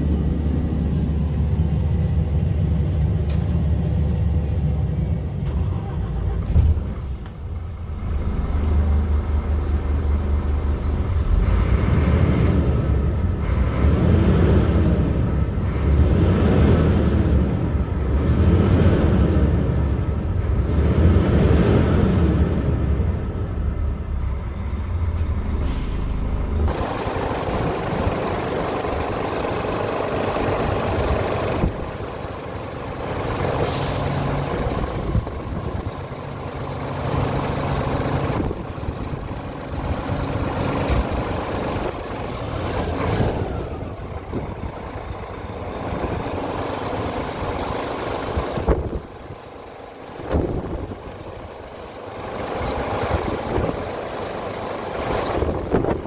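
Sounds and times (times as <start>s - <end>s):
diesel truck engine running: 0.0s - 56.0s
compressed air hiss: 33.6s - 34.2s.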